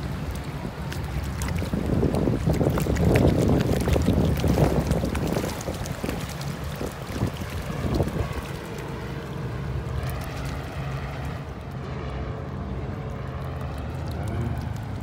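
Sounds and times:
wind buffeting microphone: 0.0s - 11.6s
surf washing on sandy beach: 0.0s - 15.0s.

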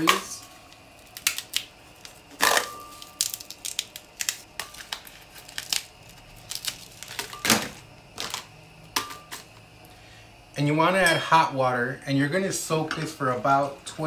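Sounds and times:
dried chiles crackling: 0.0s - 9.6s.

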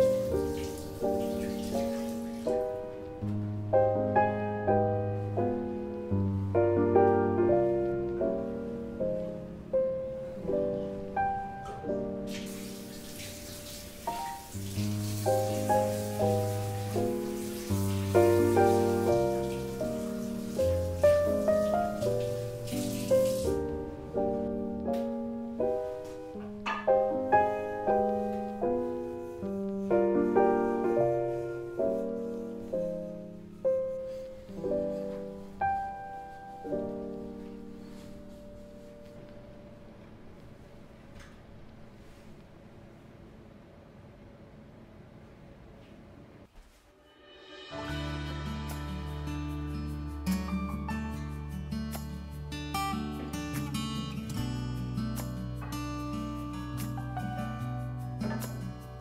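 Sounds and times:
soft solo piano: 0.0s - 40.5s, 47.9s - 59.0s.

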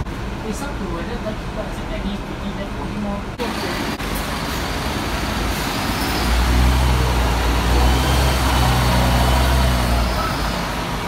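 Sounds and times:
bus diesel engine pulling away: 3.3s - 11.0s.

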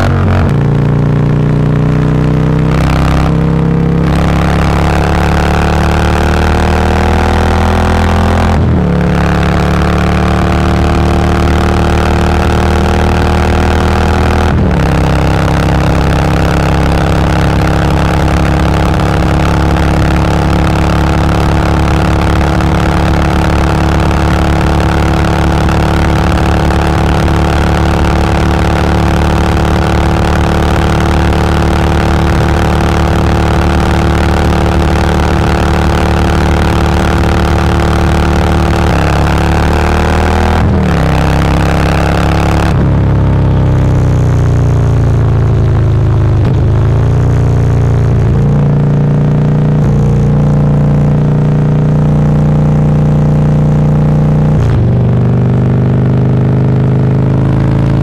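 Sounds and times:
motorcycle engine and exhaust: 0.0s - 58.0s.

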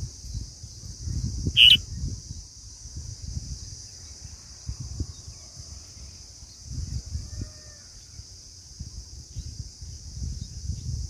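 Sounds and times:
short sharp bird chirp: 1.6s - 1.8s.

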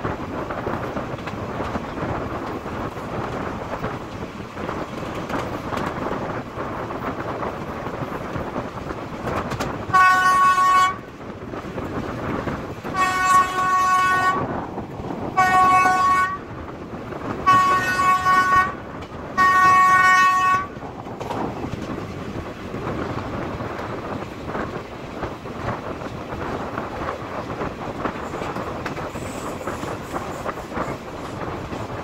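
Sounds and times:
moving train coach rumble: 0.0s - 32.0s
train horn blasts: 9.9s - 11.1s, 12.9s - 14.5s, 15.4s - 16.4s, 17.4s - 18.8s, 19.4s - 20.8s.

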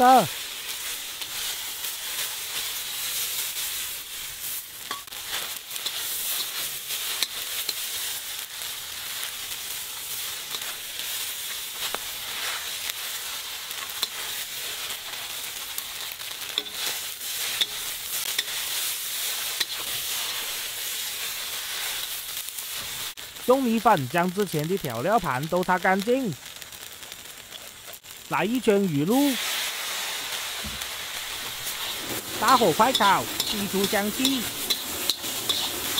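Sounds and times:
noodles sizzling in a wok: 0.0s - 35.9s
chopsticks scraping a wok: 4.9s - 8.1s, 16.5s - 23.1s, 31.3s - 35.9s.

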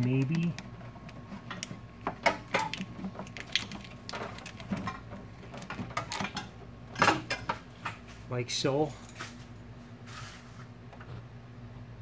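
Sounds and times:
metal tube clicking and rattling: 0.0s - 7.6s.

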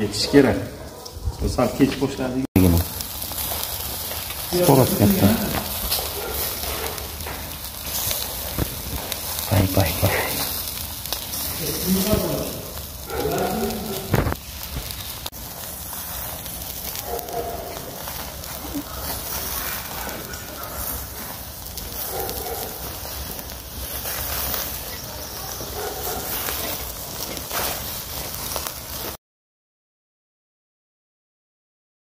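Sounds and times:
meat sizzling on charcoal grill: 0.0s - 29.2s
faint voices: 11.4s - 14.4s, 17.2s - 27.0s.

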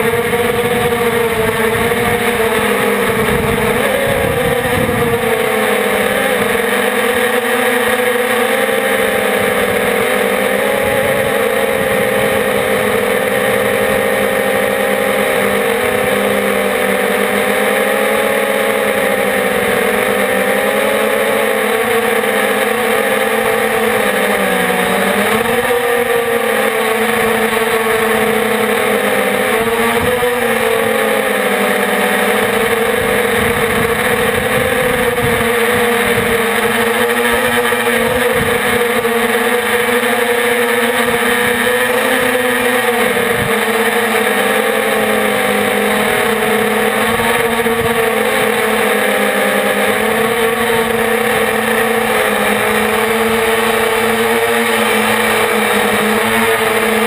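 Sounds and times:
drone propellers whining: 0.0s - 57.0s.

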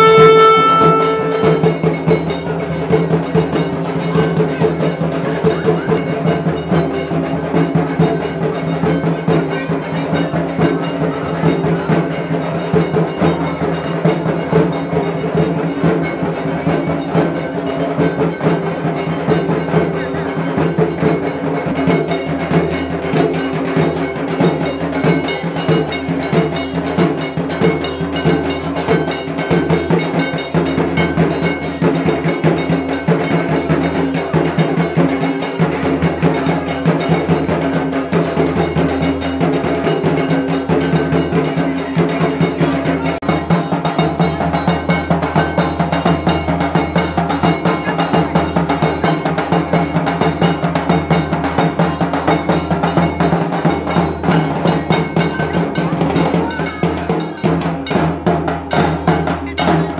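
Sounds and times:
horn-like held note: 0.0s - 1.8s
drums beaten fast: 0.0s - 59.9s
ringing metallic beat: 0.0s - 59.9s.

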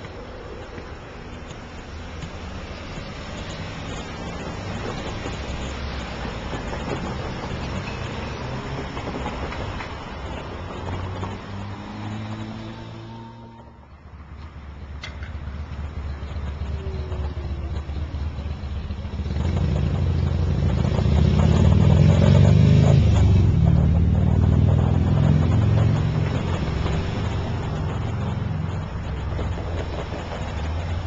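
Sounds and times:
cars running: 0.0s - 31.0s
motorcycle passing by: 10.6s - 13.8s, 15.9s - 31.0s.

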